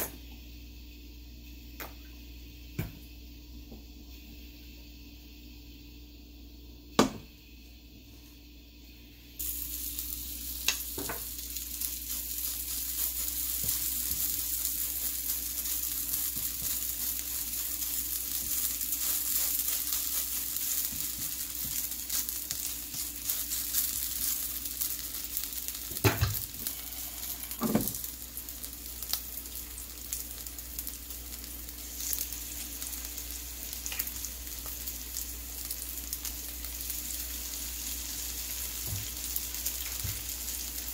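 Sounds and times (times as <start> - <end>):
patties sizzling in oil: 9.3 - 40.9.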